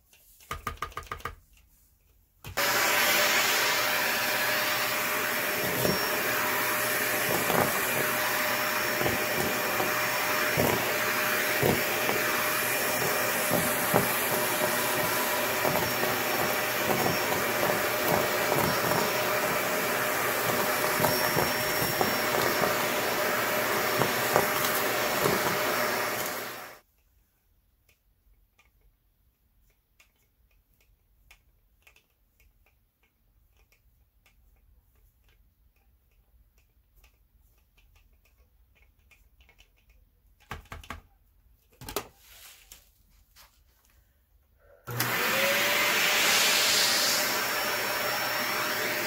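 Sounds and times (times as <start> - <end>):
vacuum cleaner running: 2.6 - 26.8, 44.9 - 49.0.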